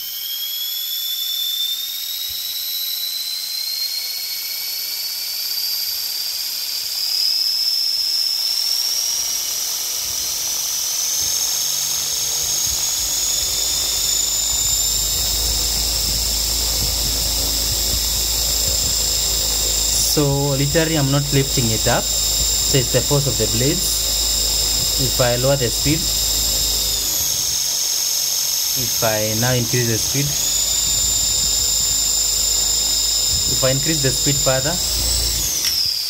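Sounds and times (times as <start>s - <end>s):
small motor whine: 0.0s - 36.0s
low rumble: 12.0s - 27.6s, 30.3s - 35.5s.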